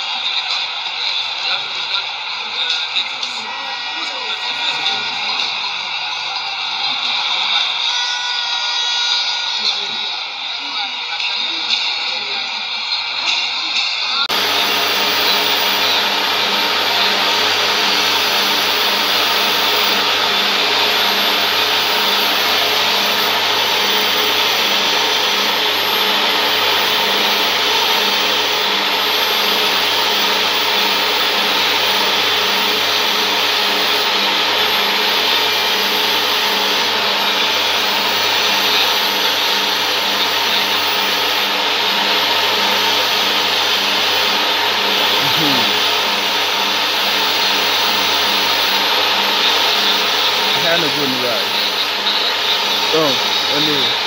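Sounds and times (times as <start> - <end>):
stadium crowd noise: 0.0 - 8.1
low hum: 14.3 - 54.0.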